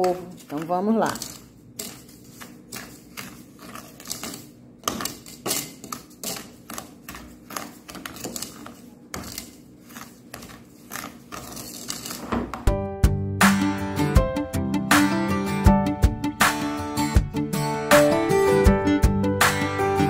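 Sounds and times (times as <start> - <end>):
spoon scraping sugar in metal pan: 0.0 - 12.2.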